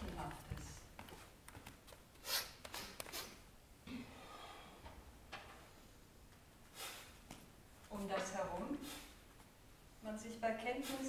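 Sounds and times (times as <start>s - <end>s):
short sharp breaths or sniffs: 2.2s - 3.4s, 6.7s - 7.2s, 8.8s - 9.2s.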